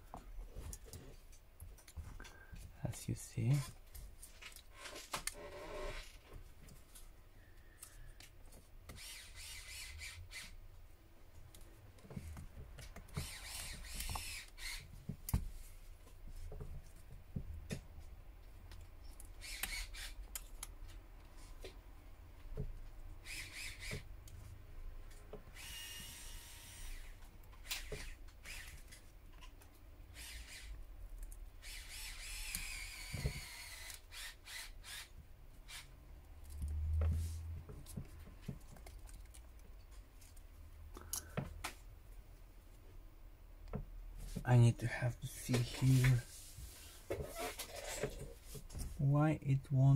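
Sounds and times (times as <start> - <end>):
tool scraping along phone seam: 4.7 - 6.4, 8.9 - 10.6, 13.0 - 15.0, 23.2 - 24.1, 30.1 - 35.9, 45.5 - 48.8.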